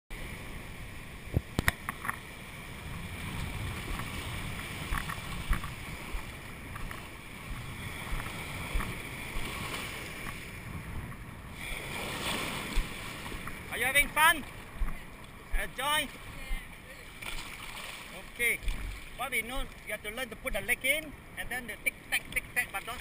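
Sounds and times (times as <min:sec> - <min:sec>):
surf washing in shallows: 0:00.1 - 0:23.0
wind buffeting microphone: 0:02.4 - 0:13.7.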